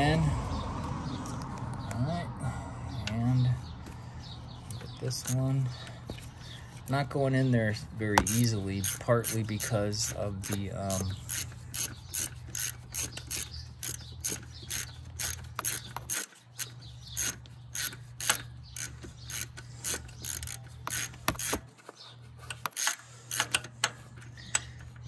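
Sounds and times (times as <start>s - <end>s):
hand ratchet clicking: 8.2s - 21.6s, 22.5s - 24.7s.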